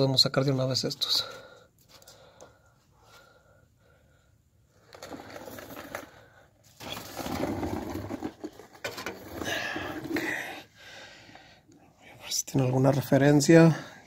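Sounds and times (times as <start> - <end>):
rustling and scraping: 4.7 - 10.6.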